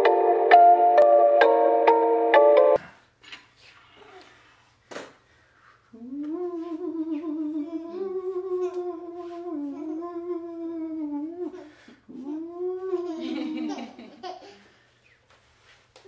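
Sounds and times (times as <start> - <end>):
person humming long note: 5.9 - 13.4.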